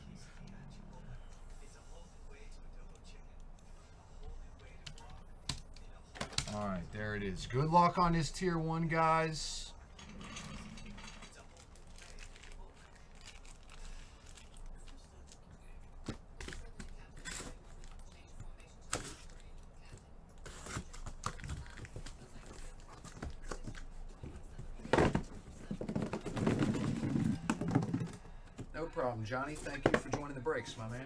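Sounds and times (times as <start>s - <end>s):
cardboard and plastic wrap tearing: 11.5s - 14.4s.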